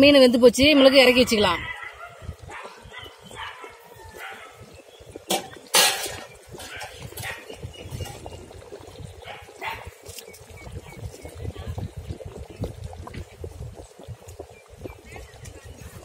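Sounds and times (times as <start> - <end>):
curry bubbling in a pot: 0.0 - 16.0
dog barking and yipping: 1.6 - 4.6, 9.3 - 9.9.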